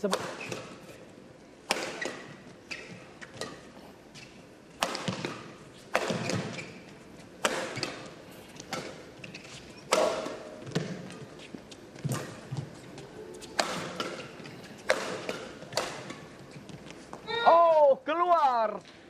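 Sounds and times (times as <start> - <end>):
rackets striking shuttlecock: 1.7 - 3.6, 4.8 - 6.6, 7.4 - 11.1, 13.5 - 16.4.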